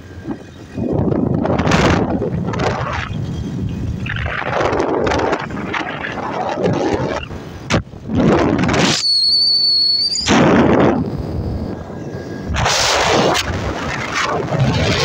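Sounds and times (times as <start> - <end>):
wind buffeting microphone: 0.0 - 9.3, 10.0 - 15.0
motorcycle low rumble: 0.0 - 15.0.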